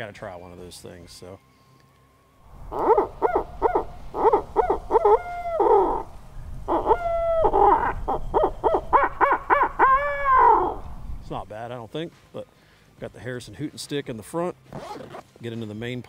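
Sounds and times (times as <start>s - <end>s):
owl hooter call hoots: 2.5s - 10.9s.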